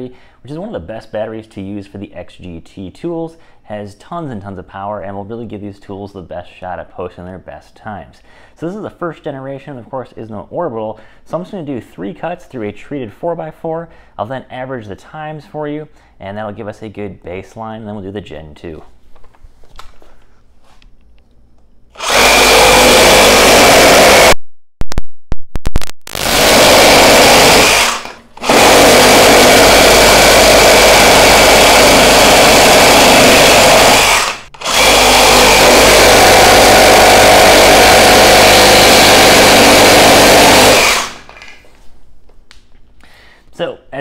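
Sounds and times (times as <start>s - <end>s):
reciprocating saw cutting wood: 22.0s - 24.4s, 26.2s - 41.4s.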